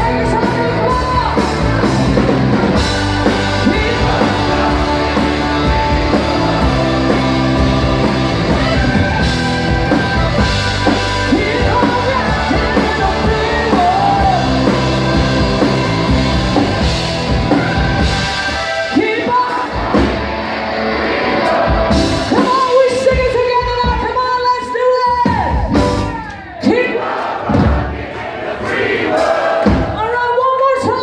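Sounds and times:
person singing: 0:00.0 - 0:16.8
blues-rock band playing: 0:00.0 - 0:26.2.

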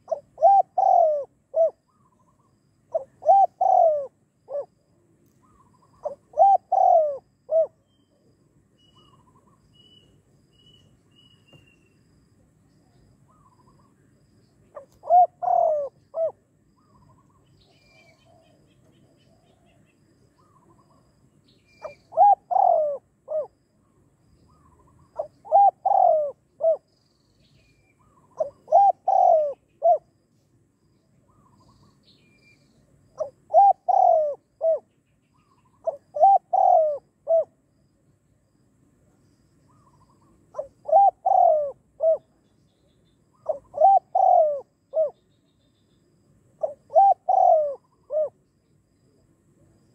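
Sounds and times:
dove cooing: 0:00.0 - 0:09.6, 0:14.6 - 0:19.8, 0:21.8 - 0:23.6, 0:24.5 - 0:26.9, 0:28.0 - 0:30.1, 0:33.0 - 0:37.6, 0:39.7 - 0:42.4, 0:43.3 - 0:45.2, 0:46.6 - 0:48.4
small birds chirping: 0:00.0 - 0:37.0, 0:39.1 - 0:49.9.

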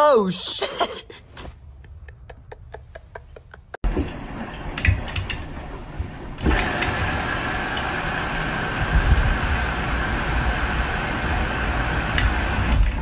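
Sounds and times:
washing machine running: 0:03.8 - 0:13.0.

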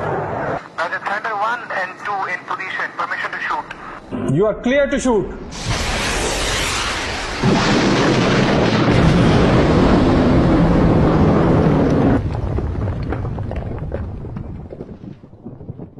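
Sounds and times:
jet exploding with loud rush: 0:05.4 - 0:12.2
wind-like noise with crackles: 0:10.0 - 0:15.9.

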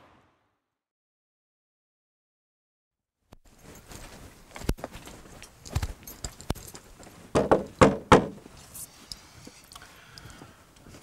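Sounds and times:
footsteps on hard surface: 0:03.4 - 0:08.6.

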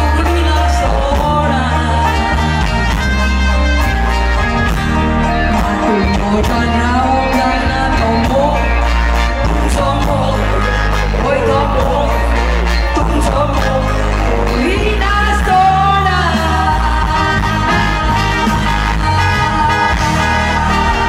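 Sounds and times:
drums: 0:00.0 - 0:21.0
guitar: 0:00.0 - 0:21.0
keyboards: 0:00.0 - 0:21.0
steady bass line: 0:00.0 - 0:21.0
woman singing lead: 0:00.0 - 0:21.0.

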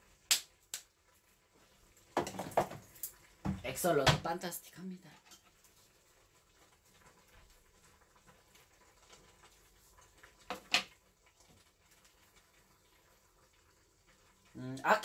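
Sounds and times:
broth simmering in a saucepan: 0:00.0 - 0:15.0.

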